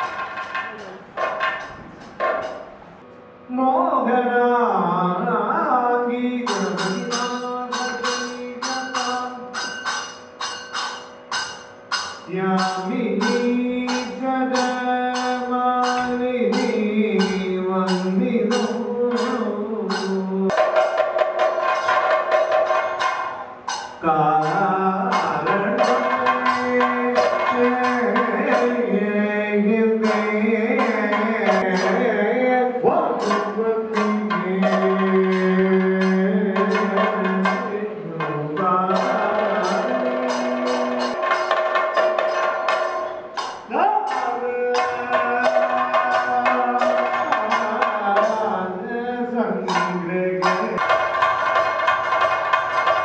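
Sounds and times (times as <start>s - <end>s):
sharp percussion strikes: 0.0s - 3.1s, 6.3s - 48.8s, 49.6s - 53.0s
man chanting: 3.5s - 9.8s, 12.3s - 20.8s, 24.0s - 41.6s, 43.7s - 51.1s.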